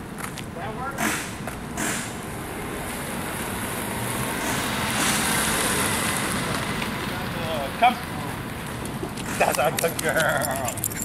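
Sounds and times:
car driving past on asphalt: 1.8s - 9.4s.

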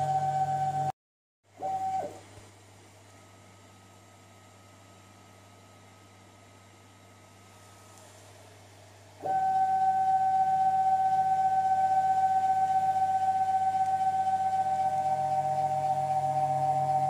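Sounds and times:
faint hum: 0.0s - 0.9s, 1.5s - 17.0s
router motor whine: 9.2s - 17.0s.

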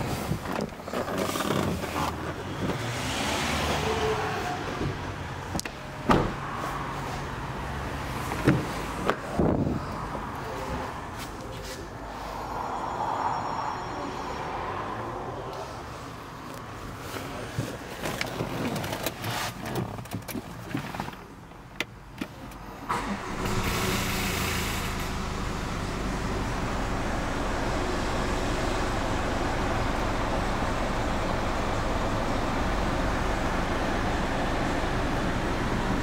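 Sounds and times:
diesel engine starting and idling: 22.0s - 36.0s.

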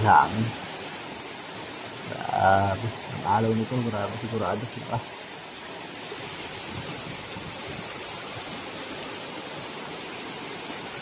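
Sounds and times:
heavy rain: 0.0s - 11.0s
strong wind: 5.6s - 11.0s.

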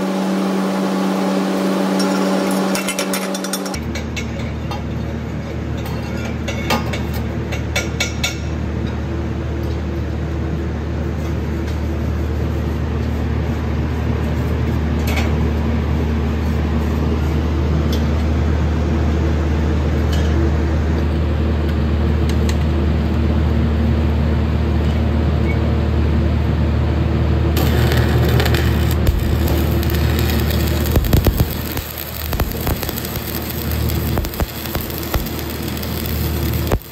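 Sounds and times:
low electrical hum: 0.0s - 36.9s
welding arc crackling: 27.6s - 36.9s.

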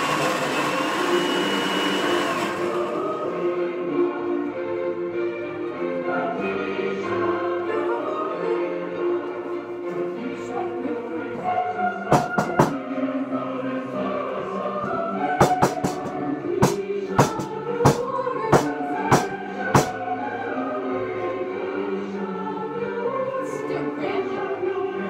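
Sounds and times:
choir music: 0.0s - 25.0s
sharp knocks: 12.1s - 12.8s, 15.4s - 18.0s.

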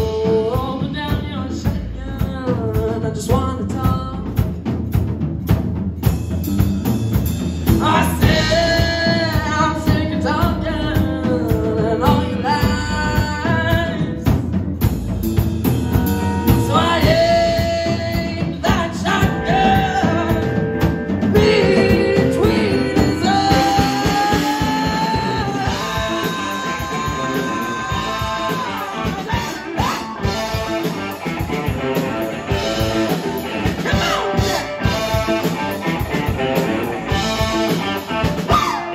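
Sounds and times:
woman singing: 0.0s - 4.4s, 7.8s - 14.5s, 16.2s - 30.8s, 32.2s - 35.1s
drum kit: 0.0s - 38.9s
electric guitars: 6.9s - 38.9s.

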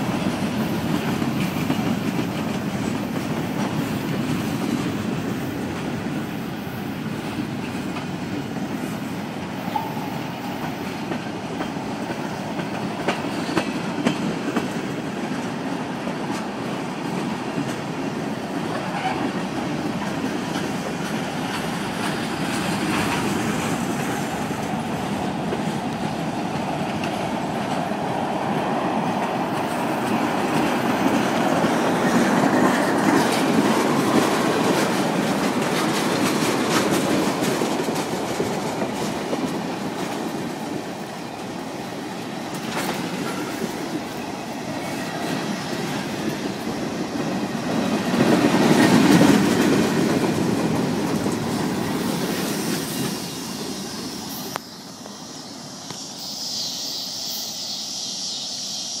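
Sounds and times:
freight train wheels clattering: 0.0s - 56.3s
faint high hiss: 51.8s - 59.0s.

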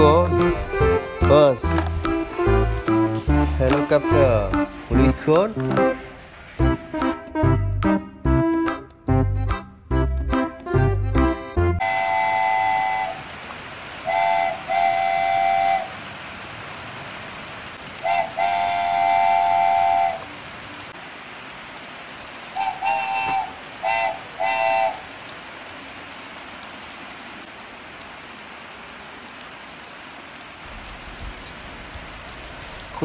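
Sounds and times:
rain on wet concrete: 0.0s - 33.0s
horn blasts: 11.7s - 13.3s, 14.0s - 16.0s, 18.0s - 20.4s, 22.6s - 25.1s.

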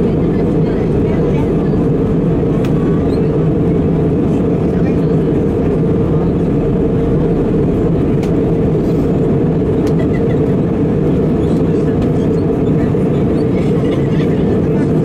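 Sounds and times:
airliner engines rumbling: 0.0s - 15.0s
rushing air: 3.4s - 11.4s.

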